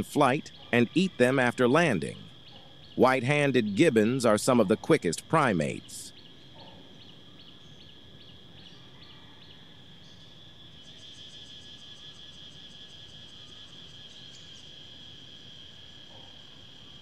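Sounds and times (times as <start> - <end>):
insect trilling: 0.0 - 10.2.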